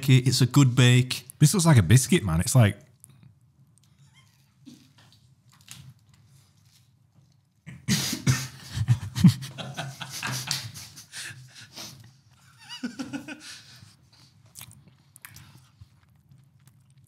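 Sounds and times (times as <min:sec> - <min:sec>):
chewing pastry: 0:02.8 - 0:07.7, 0:14.0 - 0:17.0.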